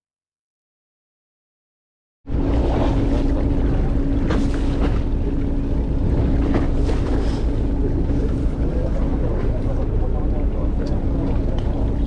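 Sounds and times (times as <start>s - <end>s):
boat engine humming: 2.3s - 12.0s
wind buffeting microphone: 2.3s - 12.0s.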